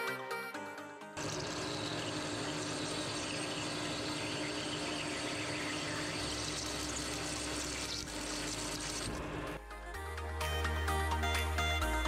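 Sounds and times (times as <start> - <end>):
metal lathe humming: 1.2 - 9.2
deeper machine hum: 1.2 - 10.0.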